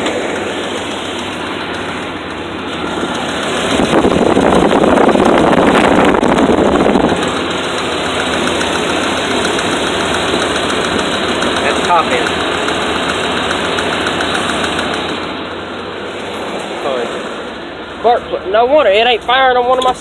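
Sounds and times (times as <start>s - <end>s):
engine ticking: 0.0s - 15.9s
engine idling with misfire: 0.0s - 20.0s.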